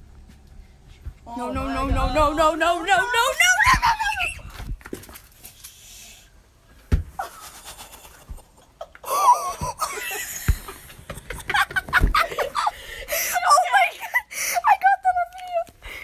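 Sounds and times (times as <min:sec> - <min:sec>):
girls laughing and squealing: 0:01.7 - 0:04.7, 0:07.2 - 0:14.9.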